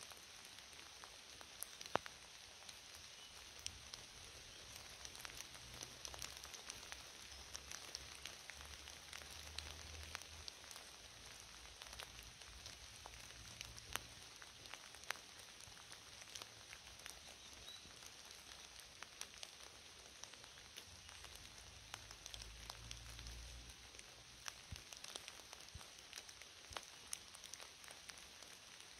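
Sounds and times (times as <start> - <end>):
rain hissing: 0.0 - 28.9
raindrops ticking: 0.0 - 28.9.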